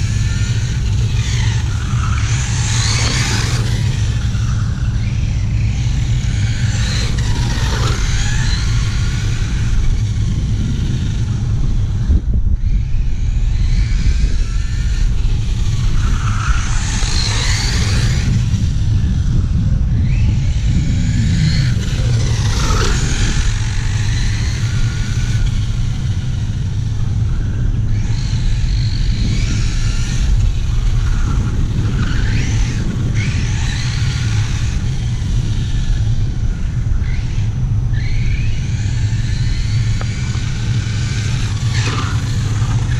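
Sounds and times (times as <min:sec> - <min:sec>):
electric motor whining: 0:00.0 - 0:42.9.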